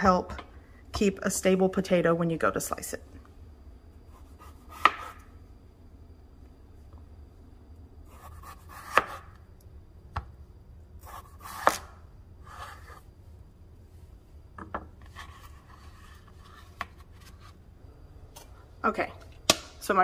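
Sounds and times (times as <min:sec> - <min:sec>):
knife slicing potato: 0:04.1 - 0:05.3, 0:08.0 - 0:09.4, 0:11.0 - 0:13.0.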